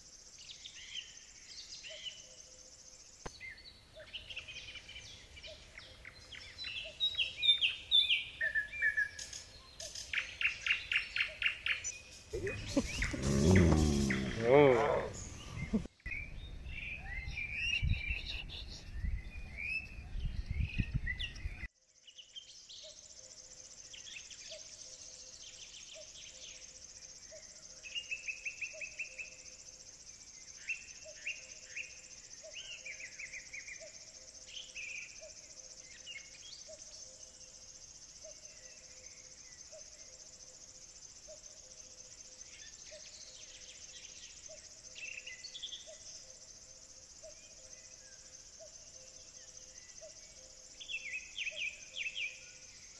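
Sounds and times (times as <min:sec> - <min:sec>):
birds chirping: 0:00.5 - 0:21.5
microphone rumble: 0:12.4 - 0:15.9.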